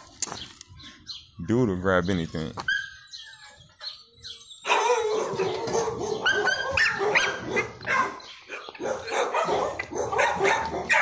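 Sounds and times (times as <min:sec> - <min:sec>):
puppies barking: 0:02.6 - 0:11.0
puppies whining: 0:02.6 - 0:11.0.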